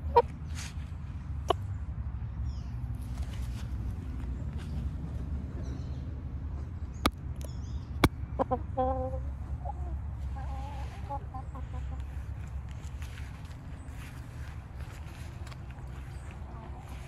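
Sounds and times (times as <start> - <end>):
hens clucking: 0.0 - 0.4, 8.0 - 17.0
steady low rumble: 0.0 - 17.0.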